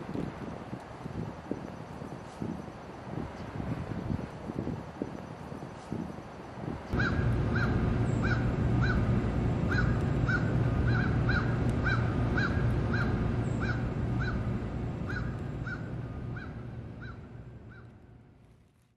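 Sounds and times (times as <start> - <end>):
low outdoor rumble: 6.7 - 18.9
bird calling: 6.9 - 18.0.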